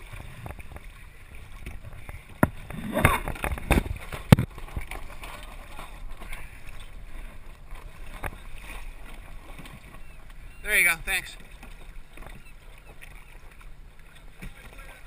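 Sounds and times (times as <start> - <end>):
water splashing against hull: 0.0 - 15.0.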